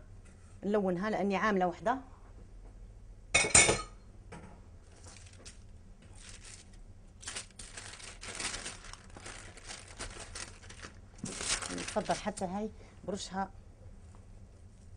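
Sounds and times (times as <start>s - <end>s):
baking paper rustling: 4.9s - 12.7s.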